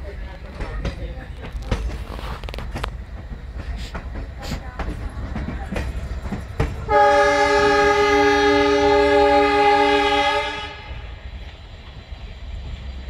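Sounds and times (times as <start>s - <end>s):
train rumbling: 0.0s - 13.0s
wheels knocking over rail joints: 0.4s - 7.5s
train horn blast: 6.9s - 11.2s.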